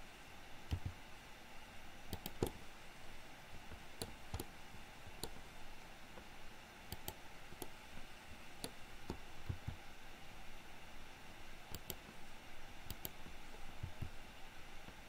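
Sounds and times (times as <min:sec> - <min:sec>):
faint room hiss: 0:00.0 - 0:15.0
computer mouse clicks: 0:00.7 - 0:01.0, 0:02.1 - 0:02.6, 0:04.0 - 0:05.5, 0:06.9 - 0:07.8, 0:08.6 - 0:09.8, 0:11.7 - 0:12.2, 0:12.9 - 0:14.2
keyboard key presses: 0:00.7 - 0:01.0, 0:02.1 - 0:02.6, 0:11.7 - 0:12.1.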